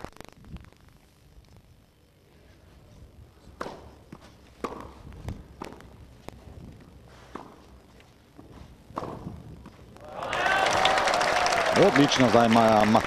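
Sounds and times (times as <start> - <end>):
tennis ball hit by rackets: 3.5 - 6.0, 7.3 - 7.7, 8.4 - 9.8.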